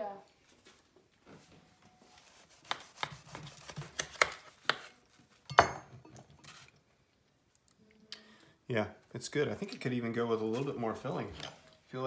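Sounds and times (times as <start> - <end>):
knife cutting through doughnut: 2.4 - 5.0.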